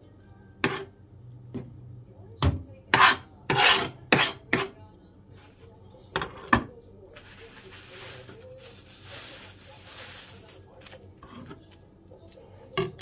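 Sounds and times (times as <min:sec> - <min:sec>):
knife scraping cutting board: 0:00.6 - 0:00.9, 0:02.9 - 0:04.7.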